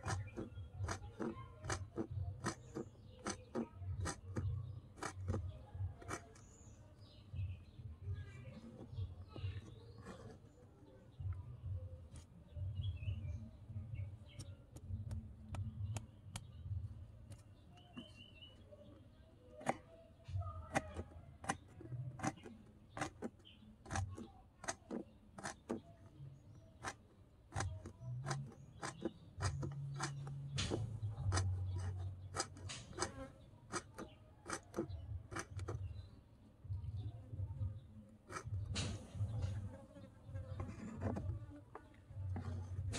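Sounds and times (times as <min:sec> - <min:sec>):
knife chopping on wooden board: 0:00.0 - 0:06.4, 0:22.2 - 0:25.8, 0:26.8 - 0:35.8.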